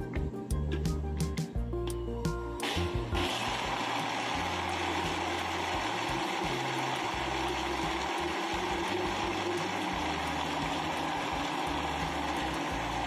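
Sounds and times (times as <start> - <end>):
blender blending ice: 2.6 - 13.0.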